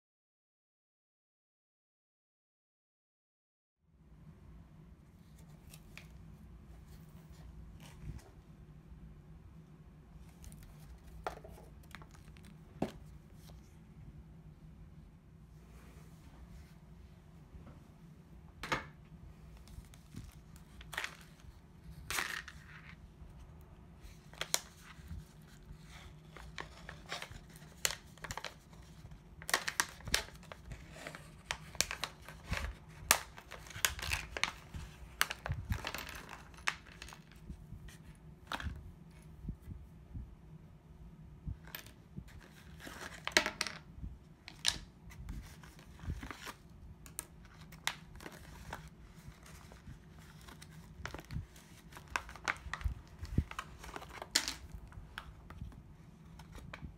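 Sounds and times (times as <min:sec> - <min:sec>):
pouch crinkling and rustling: 0:24.3 - 0:37.4.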